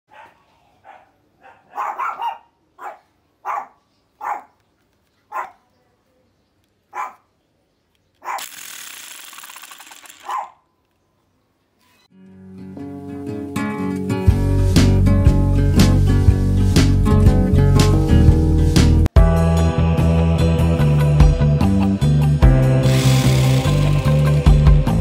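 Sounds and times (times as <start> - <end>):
dog barking: 0.1 - 4.6, 5.3 - 5.7, 6.9 - 7.3, 8.2 - 8.4, 10.2 - 10.6
rotary hammer rattling: 8.4 - 10.5.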